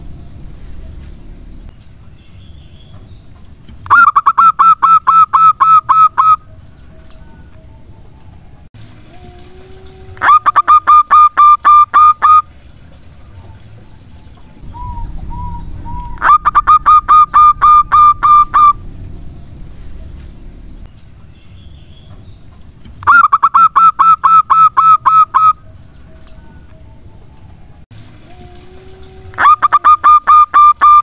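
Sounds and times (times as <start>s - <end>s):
dove cooing: 9.1s - 12.4s, 14.4s - 18.8s, 28.3s - 31.0s.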